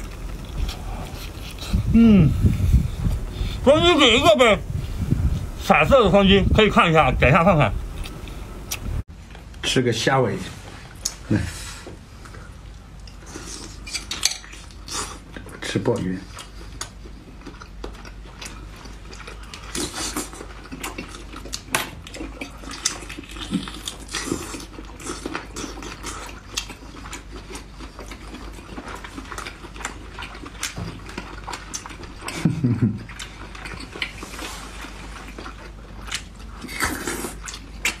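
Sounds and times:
mouth and lip eating sounds: 0.0s - 9.0s, 11.0s - 38.0s
person humming mm: 0.6s - 3.6s.

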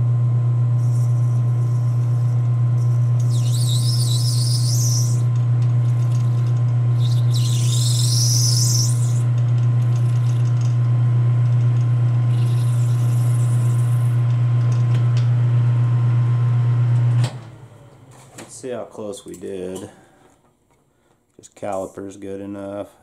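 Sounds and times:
metal lathe humming: 0.7s - 17.1s
cutting tool squealing: 0.8s - 10.8s, 12.2s - 14.2s.

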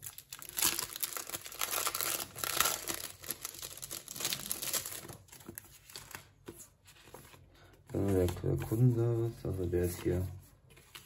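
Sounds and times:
plastic packaging crinkling: 0.0s - 6.4s.

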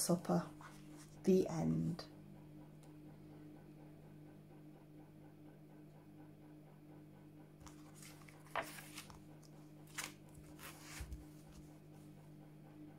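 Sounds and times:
book cover closing: 7.6s - 9.2s, 9.9s - 11.2s
book pages rustling: 7.6s - 11.7s.

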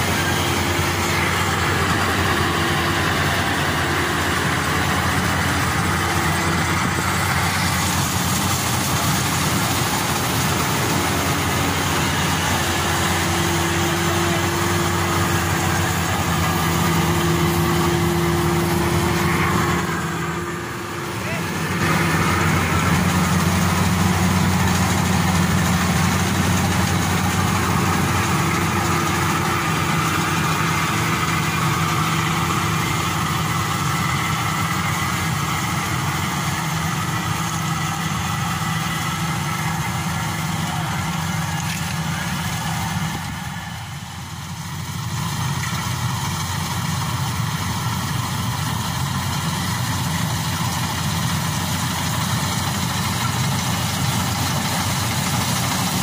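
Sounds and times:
combine harvester engine drone: 0.0s - 56.0s
machinery noise: 0.0s - 56.0s.

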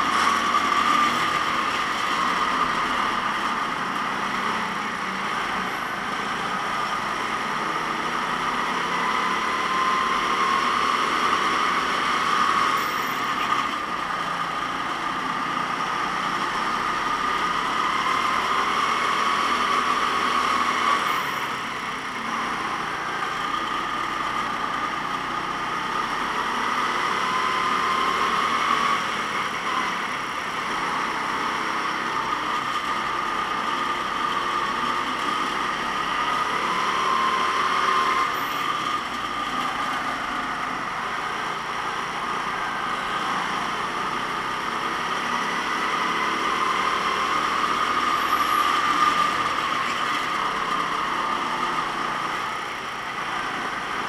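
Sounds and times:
kart engine running: 0.0s - 54.0s.

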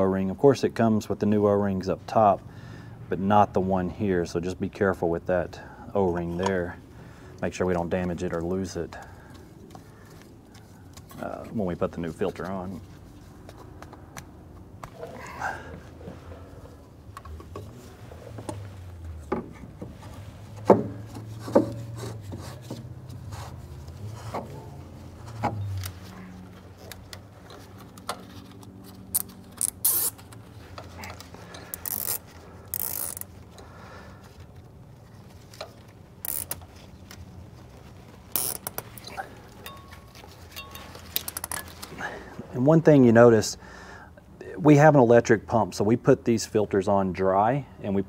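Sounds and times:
filter rubbing and scraping: 15.8s - 33.6s, 34.2s - 41.9s.

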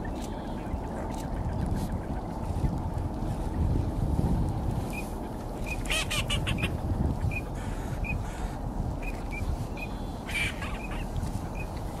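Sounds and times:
wind on microphone: 0.0s - 12.0s
ducks calling: 4.9s - 12.0s.

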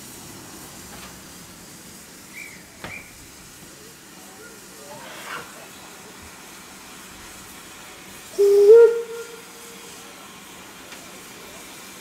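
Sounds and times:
steady background hiss: 0.0s - 12.0s
steam locomotive whistle: 8.3s - 10.0s.

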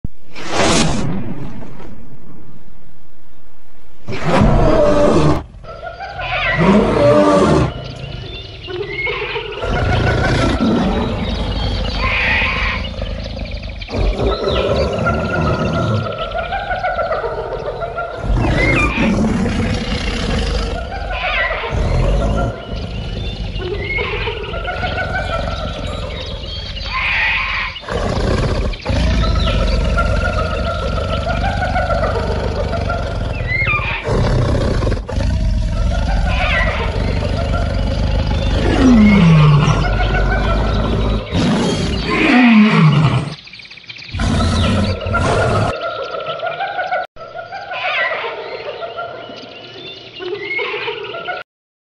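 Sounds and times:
steady low rumble: 0.0s - 5.9s
big cat roaring: 4.1s - 7.9s, 9.6s - 16.2s, 18.2s - 24.0s, 24.6s - 43.4s, 44.1s - 45.8s.

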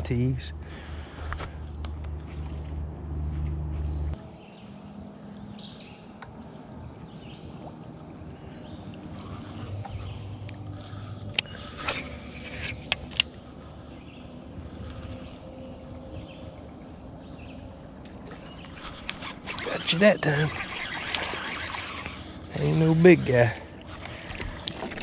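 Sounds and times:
electric motor humming: 18.8s - 23.1s
fishing reel clicks: 19.0s - 22.4s.

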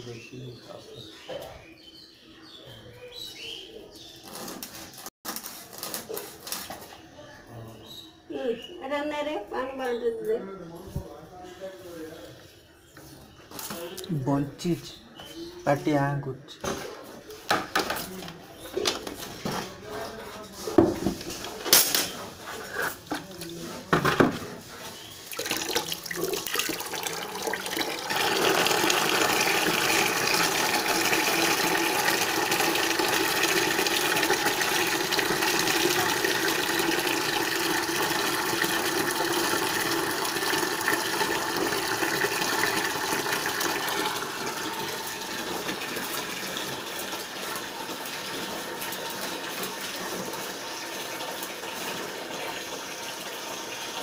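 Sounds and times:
water splashing onto hard floor: 25.2s - 50.5s.

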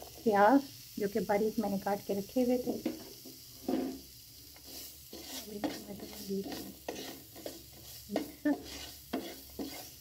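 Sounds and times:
onions sizzling in hot oil: 0.0s - 10.0s
wooden spatula scraping pan: 2.9s - 10.0s.

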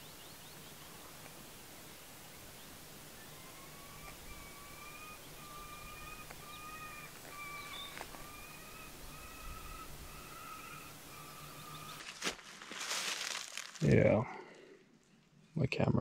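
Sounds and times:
bird calling in drawn-out notes: 0.0s - 12.3s.

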